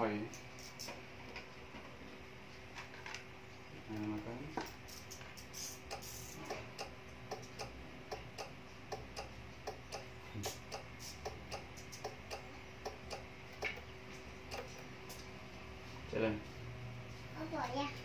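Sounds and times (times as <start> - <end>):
faint steady hum: 0.0 - 18.0
regular ticking: 5.8 - 15.1.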